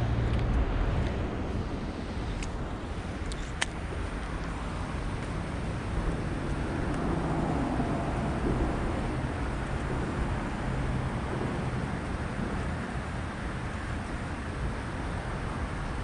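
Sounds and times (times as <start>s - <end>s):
water rushing over spillway: 1.7s - 16.0s.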